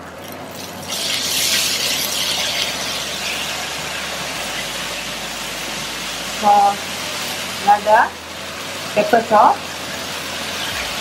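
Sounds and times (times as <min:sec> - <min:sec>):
vegetables sizzling in a wok: 0:00.0 - 0:11.0
spatula stirring in a wok: 0:00.5 - 0:05.1.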